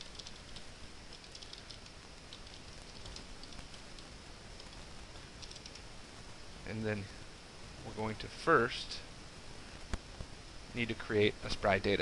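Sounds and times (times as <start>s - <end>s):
keyboard typing: 0.0s - 5.8s
steady hiss: 0.0s - 12.0s.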